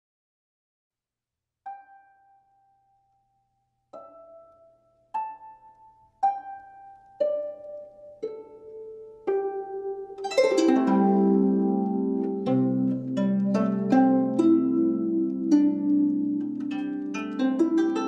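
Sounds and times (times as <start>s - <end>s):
harp-like plucked-string melody: 1.7s - 2.9s, 4.0s - 18.0s.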